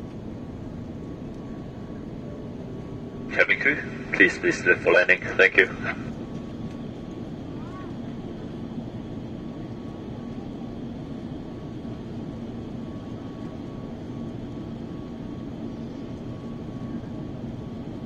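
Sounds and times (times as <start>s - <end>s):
jet engine hum in cabin: 0.0s - 18.0s
faint high whine: 1.3s - 6.2s.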